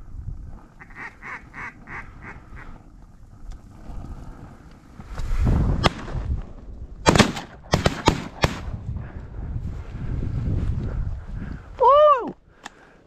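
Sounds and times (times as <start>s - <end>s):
shotgun shots: 7.0s - 8.7s.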